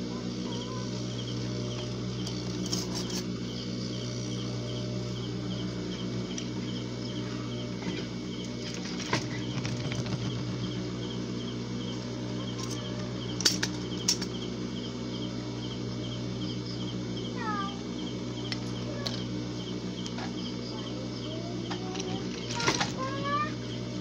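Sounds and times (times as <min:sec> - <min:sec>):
sewing machine motor humming: 0:00.0 - 0:24.0
sewing machine stitching: 0:07.8 - 0:11.2, 0:21.8 - 0:23.2.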